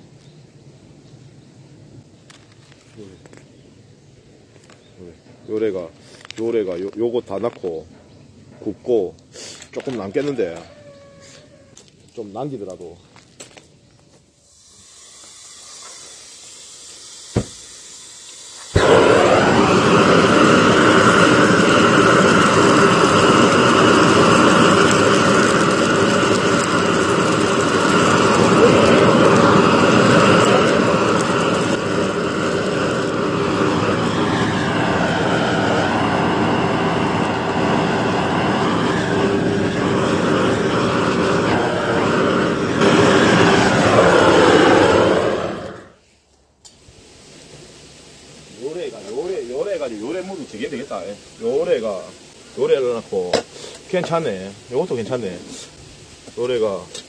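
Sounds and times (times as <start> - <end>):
gas torch rushing: 14.4 - 46.0, 46.6 - 56.9
gas torch ignition click: 46.6 - 46.8.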